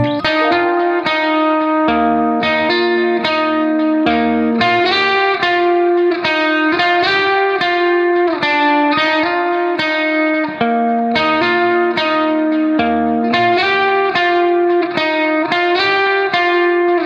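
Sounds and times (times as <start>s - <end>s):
fast melody background music: 0.0s - 1.8s.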